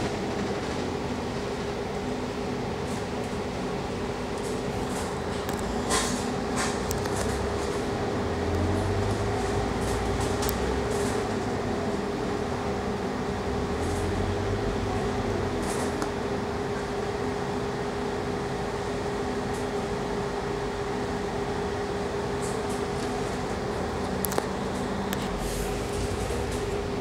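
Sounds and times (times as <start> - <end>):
bus engine droning: 0.0 - 27.0
drivetrain whine: 20.3 - 27.0.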